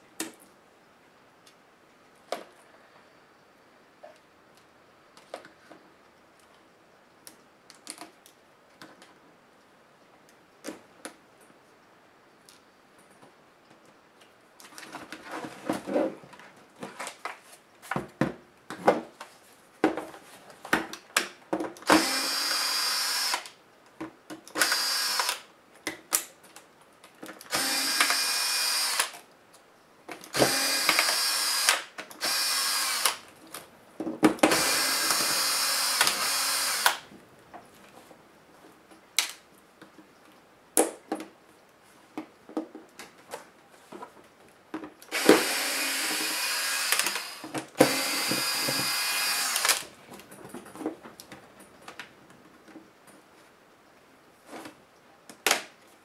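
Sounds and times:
power screwdriver running: 21.9 - 23.5, 24.6 - 25.4, 27.5 - 29.1, 30.4 - 33.2, 34.5 - 37.0, 45.1 - 49.8.

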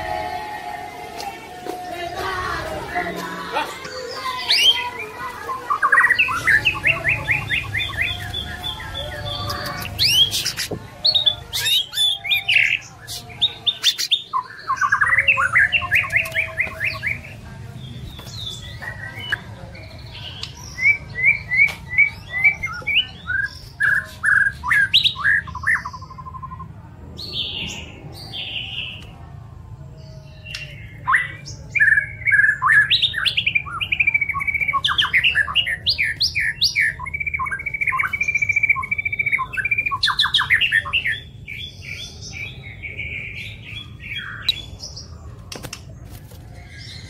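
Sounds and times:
songbird singing: 0.0 - 47.0.

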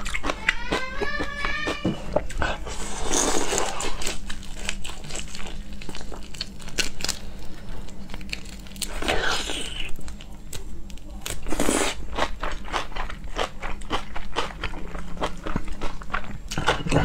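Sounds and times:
prawn shells crackling: 3.4 - 11.6.

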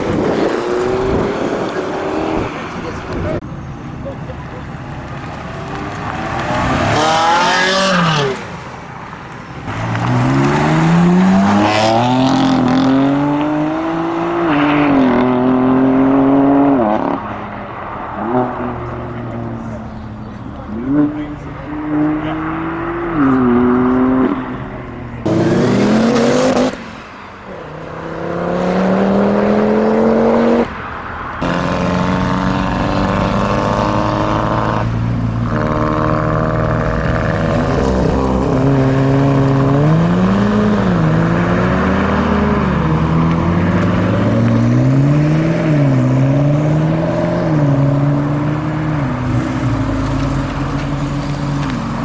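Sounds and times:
car engines accelerating hard: 0.0 - 52.0
engine revving: 6.1 - 8.5, 9.7 - 17.2, 25.2 - 26.8, 27.7 - 30.7, 31.4 - 52.0.

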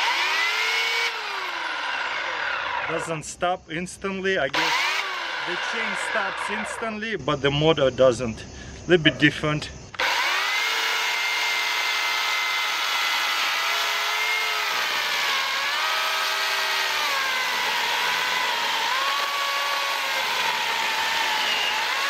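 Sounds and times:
electric chainsaw cutting log: 0.0 - 3.1, 4.5 - 7.0, 9.9 - 22.0.

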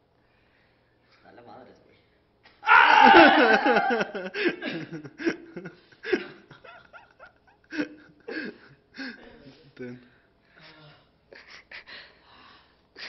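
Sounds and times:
man yelling in pain: 2.6 - 3.7
bursts of laughter: 2.7 - 8.5.

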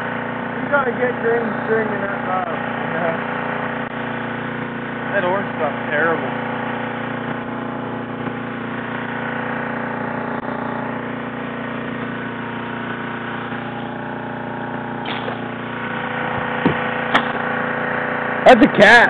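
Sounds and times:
engine droning hum: 0.0 - 19.0
sharp click: 16.6 - 17.4.

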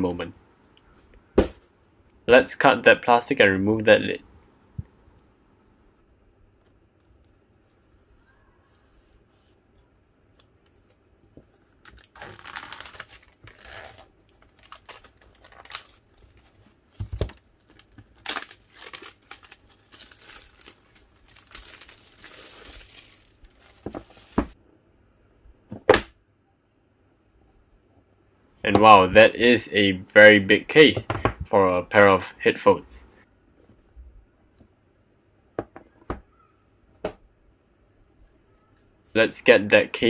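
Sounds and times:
plastic shrink-wrap tearing: 11.7 - 16.6, 17.2 - 24.6.

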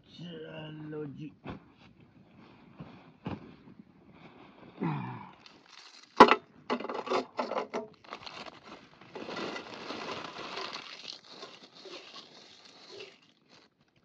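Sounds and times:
plastic packet crinkling: 5.4 - 14.0
snacks rustling onto steel plate: 5.4 - 14.0.

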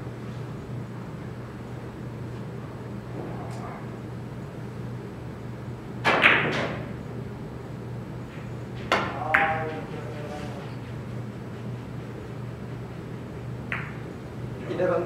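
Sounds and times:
steady low hum: 0.0 - 15.0
cue striking ball: 6.0 - 7.0, 8.9 - 9.7, 13.7 - 14.0
billiard balls clicking: 13.7 - 14.0.

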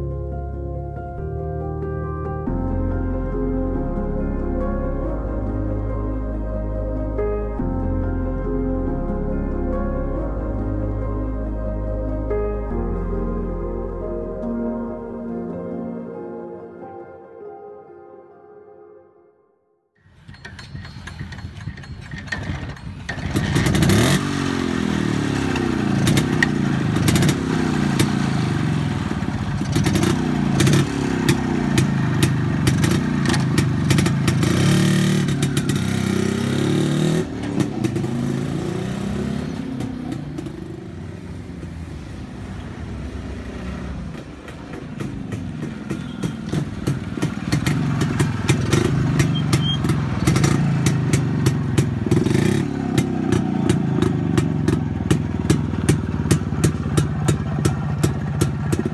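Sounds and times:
motorcycle engine revving: 20.3 - 58.9.

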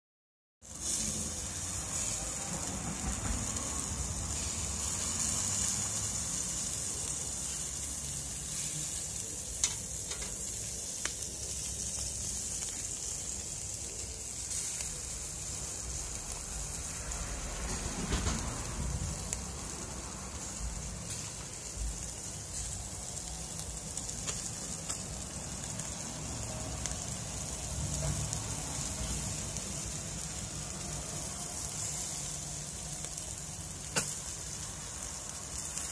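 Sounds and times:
fish sizzling over charcoal: 0.6 - 35.9.

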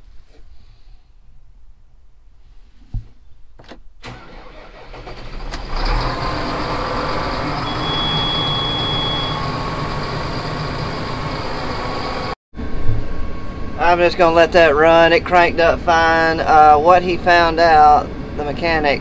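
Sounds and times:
diesel engine cranking and running: 4.0 - 12.4
high electronic beep: 7.6 - 9.4.

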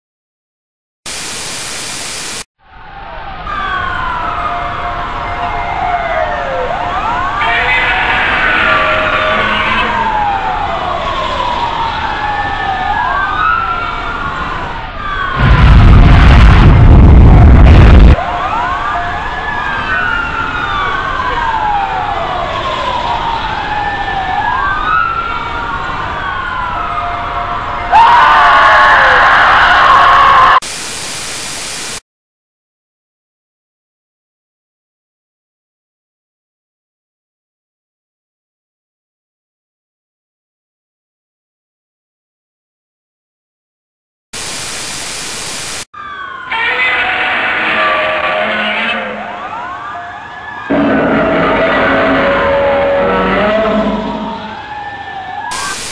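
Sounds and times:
sirens wailing: 2.7 - 30.6, 45.9 - 55.9
loud rumbling burst of noise: 15.4 - 18.2, 50.7 - 54.5.

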